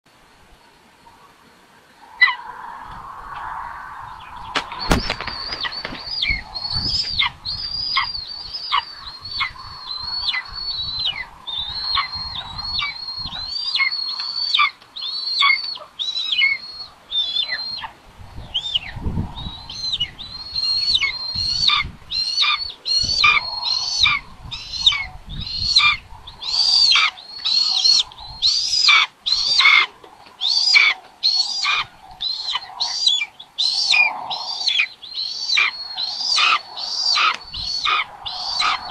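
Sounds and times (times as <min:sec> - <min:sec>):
nestlings begging calls: 0:04.0 - 0:38.9
low thumps in nest: 0:04.5 - 0:07.3.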